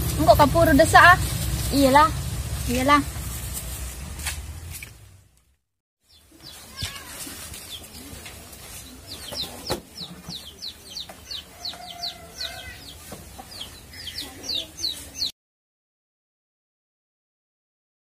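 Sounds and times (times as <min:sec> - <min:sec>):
birds chirping: 0:06.0 - 0:15.4.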